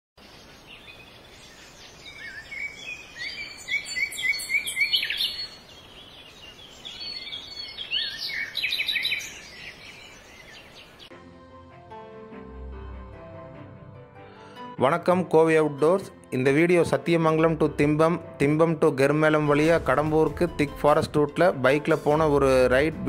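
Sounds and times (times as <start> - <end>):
birds chirping and singing: 0.2 - 11.1.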